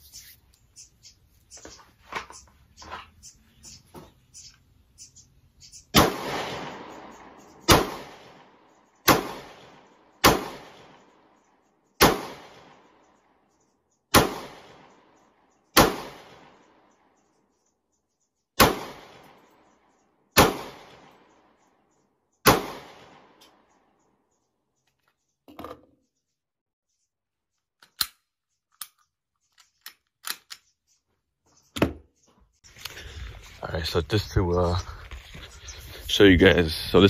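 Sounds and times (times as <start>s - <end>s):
pistol shots with echo: 5.9s - 11.2s, 12.0s - 13.0s, 14.1s - 15.1s, 15.7s - 16.8s, 18.6s - 19.4s, 20.3s - 21.3s, 22.4s - 23.4s.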